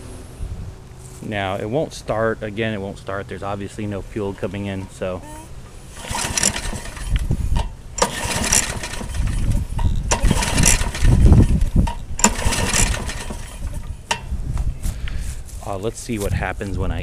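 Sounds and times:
lawn mower pull-start cranking: 0:05.5 - 0:14.3.

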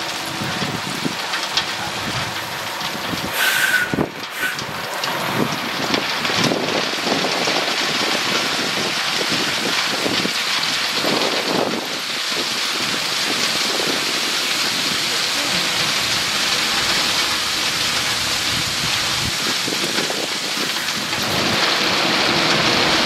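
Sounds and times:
truck engine running: 0:00.0 - 0:23.0
short high squeal: 0:03.4 - 0:04.6.

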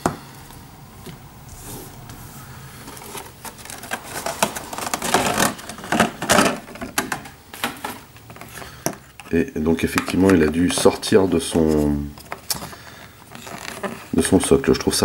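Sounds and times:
plastic packaging crinkling: 0:01.9 - 0:15.0.

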